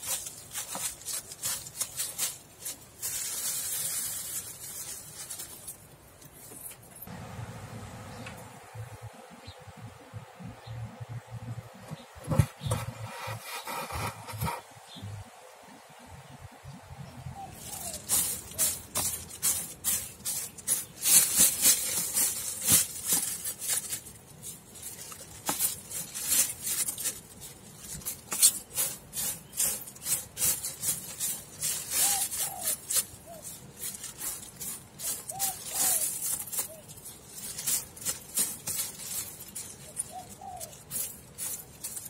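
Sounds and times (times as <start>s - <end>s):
dry seeds rustling in a plastic tub: 0.0s - 7.1s, 17.5s - 42.0s
faint bird chirping: 7.9s - 21.1s, 38.8s - 42.0s.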